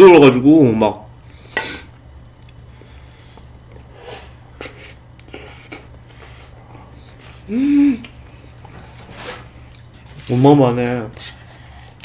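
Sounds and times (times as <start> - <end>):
soft eating sounds: 1.2 - 12.0.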